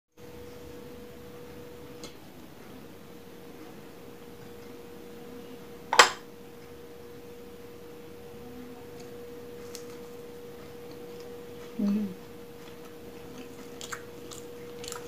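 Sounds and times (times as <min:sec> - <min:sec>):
faint steady hum: 0:00.2 - 0:15.0
crunch of biting into food: 0:12.7 - 0:15.0.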